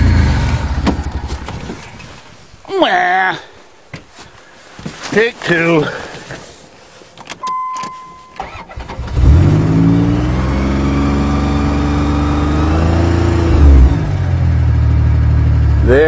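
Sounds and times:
engine revving: 0:00.0 - 0:01.2, 0:08.6 - 0:15.9
engine cranking: 0:08.4 - 0:09.6.

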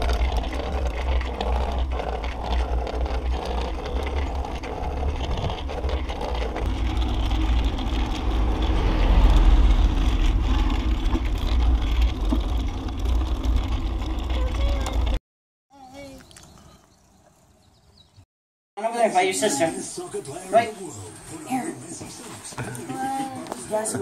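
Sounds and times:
rolling road noise: 0:00.0 - 0:15.2
wind rumble on microphone: 0:04.8 - 0:15.2.

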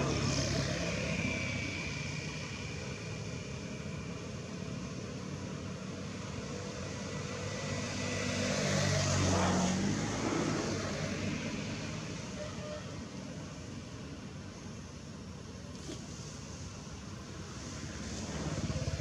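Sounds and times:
vehicle engine passing by: 0:17.5 - 0:19.0.

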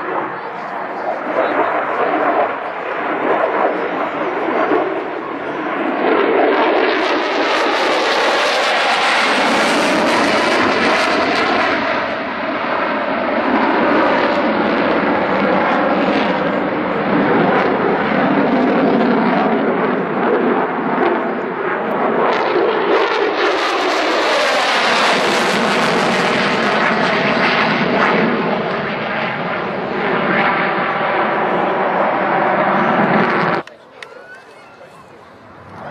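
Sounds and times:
jet noise overhead: 0:00.0 - 0:35.9.

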